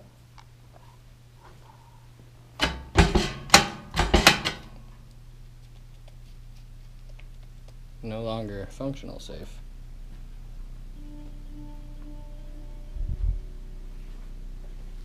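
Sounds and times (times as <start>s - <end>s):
safe handle rattling metal clanks: 2.6s - 4.8s.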